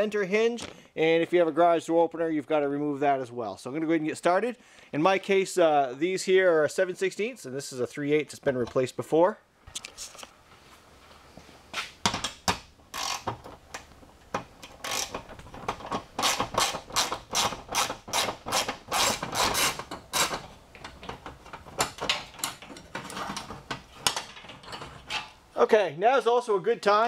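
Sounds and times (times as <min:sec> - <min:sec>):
socket ratchet wrench clicking: 0:13.0 - 0:13.3, 0:14.7 - 0:15.3.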